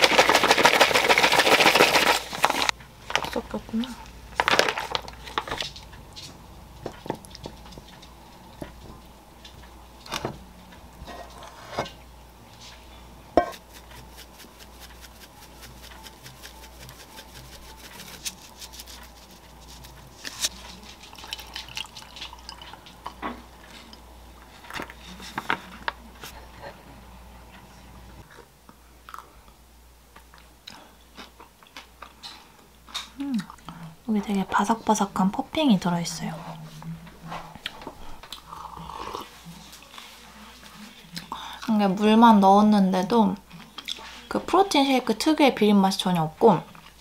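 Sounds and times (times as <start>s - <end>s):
liquid poured into a glass: 21.0s - 23.2s.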